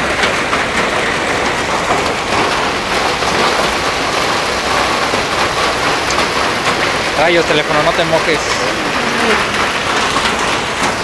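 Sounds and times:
hail and rain pelting pavement: 0.0s - 11.0s.

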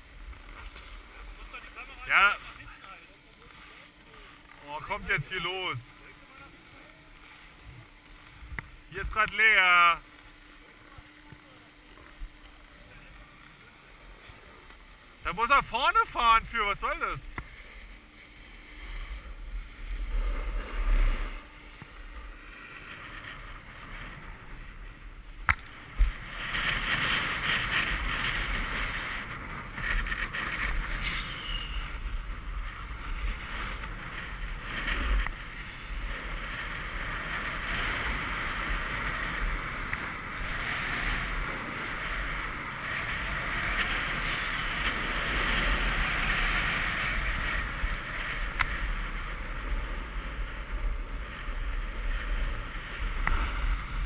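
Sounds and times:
snowboard scraping on snow: 0.0s - 2.8s, 3.4s - 5.8s, 12.7s - 54.0s.

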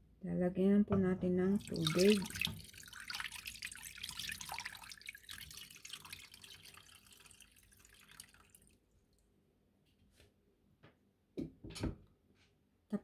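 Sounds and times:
water splashing and trickling: 1.5s - 9.3s.

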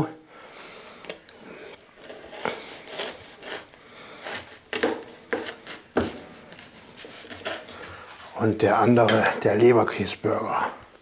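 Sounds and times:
knife cutting through bread: 1.8s - 8.4s
knocks and scrapes: 4.3s - 9.4s.

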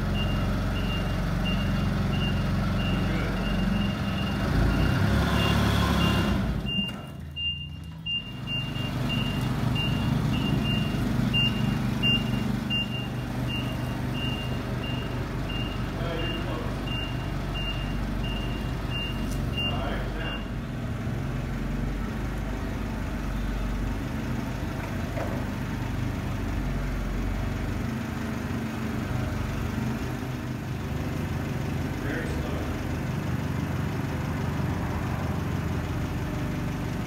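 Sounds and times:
forklift backup alarm beeping: 0.0s - 20.7s
forklift engine running: 0.0s - 37.0s.

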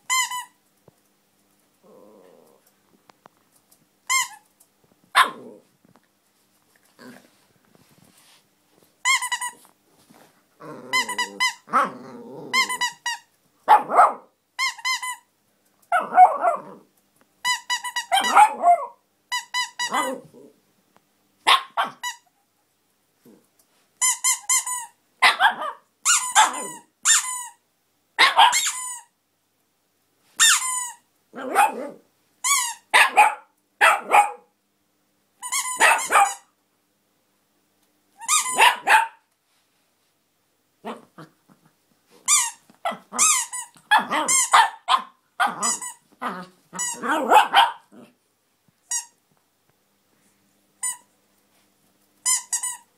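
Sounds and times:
squeaky toy squeaking: 0.1s - 0.6s, 4.1s - 4.4s, 9.0s - 9.6s, 10.9s - 11.7s, 12.5s - 13.3s, 14.6s - 15.3s, 17.4s - 20.2s, 21.5s - 22.2s, 24.0s - 27.6s, 28.2s - 29.1s, 30.4s - 31.0s, 32.4s - 33.2s, 35.4s - 36.5s, 38.2s - 39.2s, 42.3s - 46.0s, 46.8s - 47.8s, 48.9s - 49.2s, 50.8s - 51.1s, 52.2s - 52.9s
small dog barking and growling: 1.8s - 2.7s, 5.1s - 5.7s, 6.9s - 7.4s, 10.6s - 13.0s, 13.6s - 14.4s, 15.9s - 17.0s, 18.1s - 19.0s, 19.8s - 20.6s, 21.4s - 22.1s, 25.2s - 26.9s, 28.2s - 28.7s, 31.3s - 32.1s, 32.8s - 34.6s, 35.8s - 36.5s, 38.4s - 39.3s, 40.8s - 48.2s.

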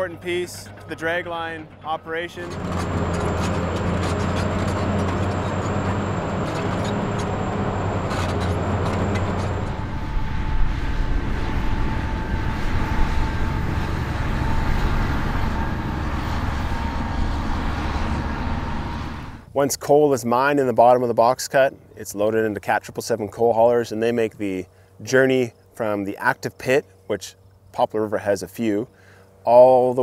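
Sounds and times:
bulldozer diesel engine running: 0.0s - 19.5s
truck driving by: 0.0s - 19.5s.

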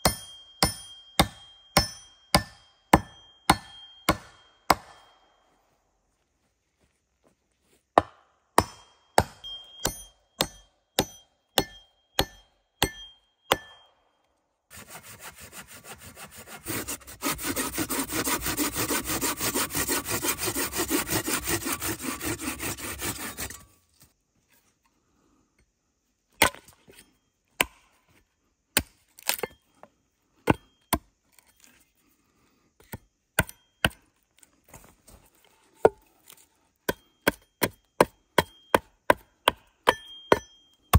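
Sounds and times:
hand sawing through wood: 14.7s - 23.6s.

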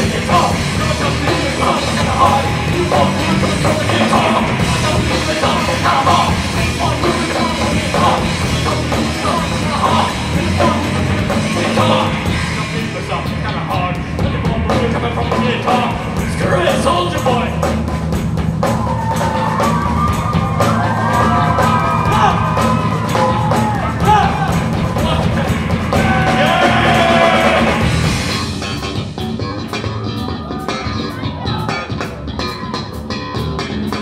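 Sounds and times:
man singing lead vocal: 0.0s - 17.6s, 23.7s - 27.9s
live rock band playing: 0.0s - 34.0s.

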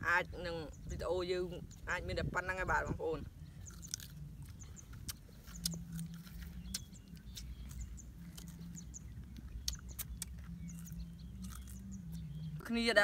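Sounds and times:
mango being chewed and crunched: 3.4s - 12.7s.

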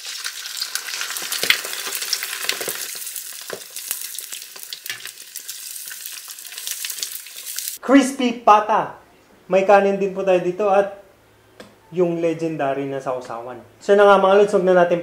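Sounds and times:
meat deep-frying in oil: 0.0s - 7.8s.

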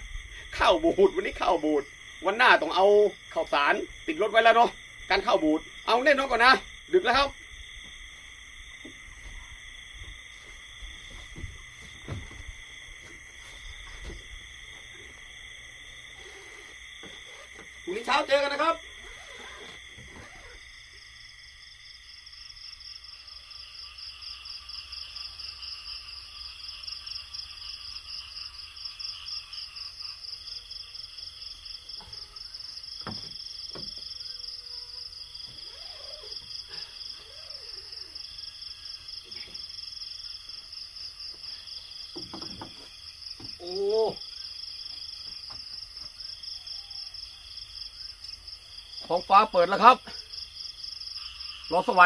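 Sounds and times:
insect chirping: 0.0s - 52.0s
insect trill: 0.0s - 52.0s
faint calls: 33.7s - 39.6s.

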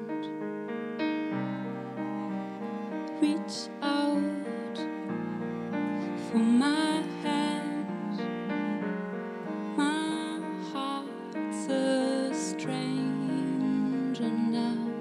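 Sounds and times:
cello bowing long low notes: 1.2s - 15.0s
woman singing: 3.2s - 5.1s, 6.0s - 8.3s, 9.6s - 15.0s.

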